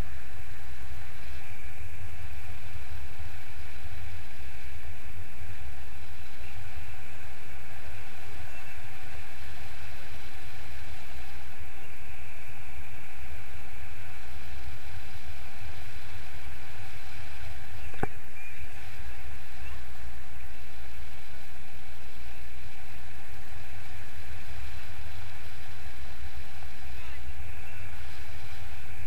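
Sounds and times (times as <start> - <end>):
wind rushing over microphone: 0.0 - 29.0.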